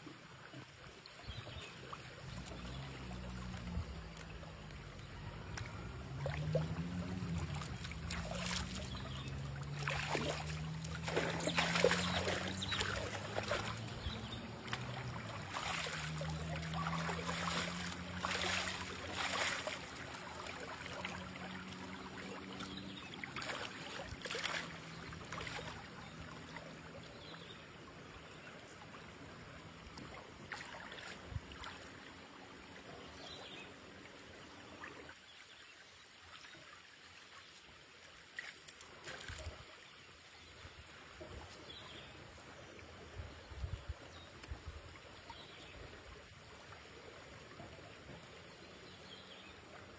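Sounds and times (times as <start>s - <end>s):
river running over stones: 0.0s - 49.9s
person wading and splashing: 1.6s - 26.8s, 29.8s - 32.1s
low wavering hum: 2.1s - 27.6s.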